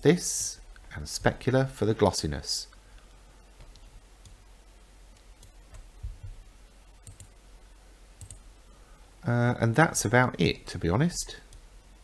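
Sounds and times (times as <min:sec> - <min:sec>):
computer mouse clicks: 0:02.9 - 0:04.4, 0:07.0 - 0:07.3, 0:08.2 - 0:08.4
soft low thump: 0:06.0 - 0:06.4.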